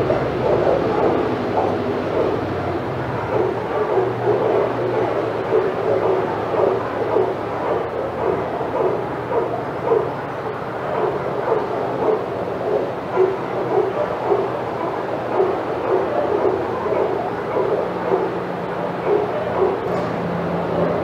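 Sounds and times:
dogs barking: 0.0 - 21.0.

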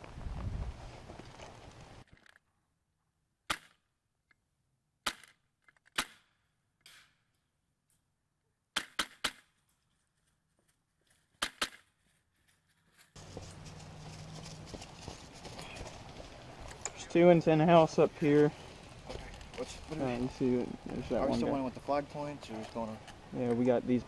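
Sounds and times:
outdoor field noise: 0.0 - 24.0
airsoft rifle shots: 8.8 - 9.5.

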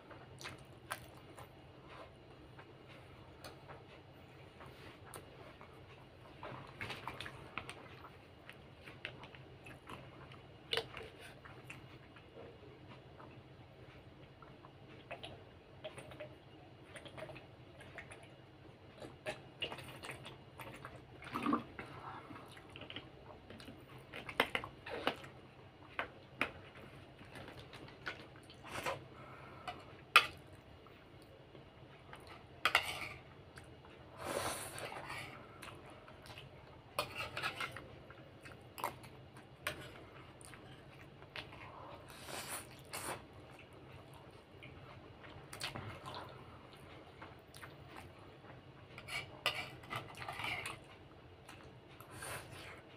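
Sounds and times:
person chewing: 18.9 - 48.3.

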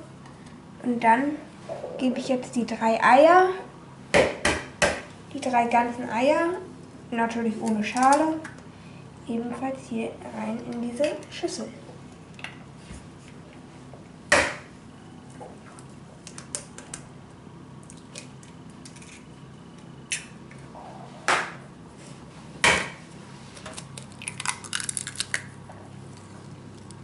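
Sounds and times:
eggshell crackling: 23.8 - 25.6.

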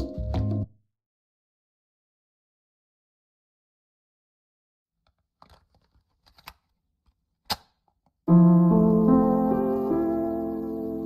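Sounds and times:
piano music with held chords: 0.0 - 0.7, 8.3 - 11.0.

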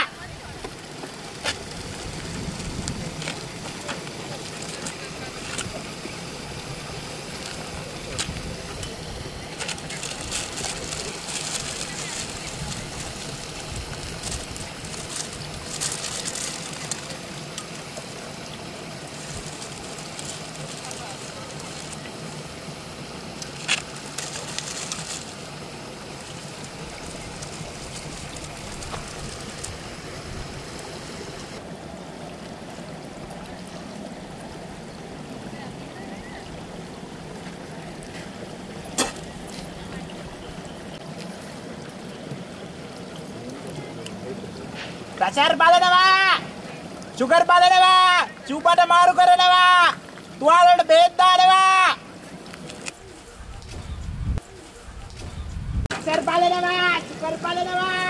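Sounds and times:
rushing hiss: 0.0 - 31.6
outdoor background noise: 0.0 - 58.0
crackling rustles: 0.6 - 31.6, 52.2 - 56.2
small clicks and rustling: 23.4 - 25.3.

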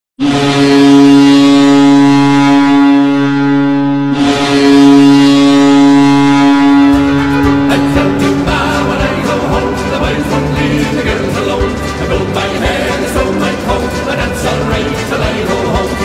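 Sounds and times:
deep goal horn blasts: 0.2 - 12.0
music: 5.6 - 16.0.

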